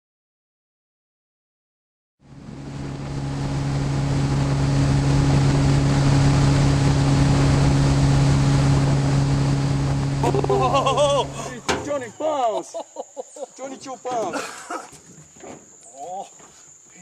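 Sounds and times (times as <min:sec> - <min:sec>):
outboard motor running: 0:02.2 - 0:11.9
wind noise: 0:02.3 - 0:11.6
water rushing: 0:02.3 - 0:12.1.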